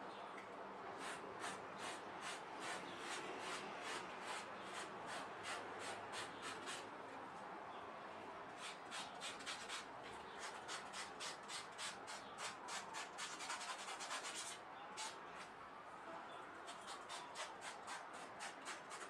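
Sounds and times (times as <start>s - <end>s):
sandpaper rubbing on leather: 1.0s - 6.8s, 8.6s - 15.2s, 16.7s - 19.0s.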